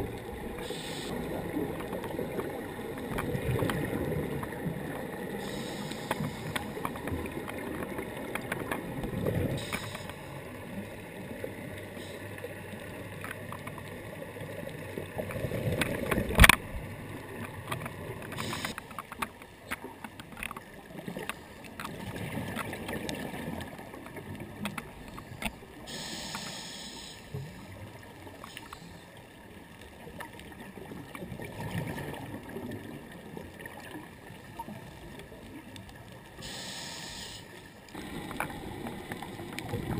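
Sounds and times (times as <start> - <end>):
diver's exhaled bubbles gurgling: 0.0 - 9.8, 37.9 - 39.9.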